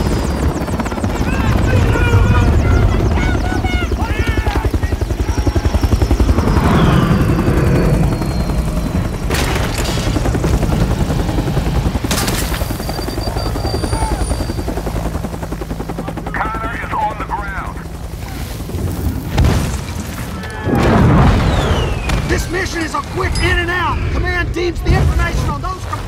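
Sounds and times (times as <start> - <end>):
helicopter rotors chopping: 0.0 - 26.0.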